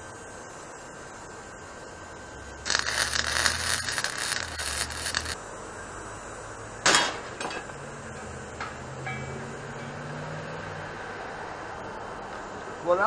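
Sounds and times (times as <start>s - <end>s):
welding arc crackling: 2.5s - 5.4s
metal clank with ring: 9.0s - 10.0s.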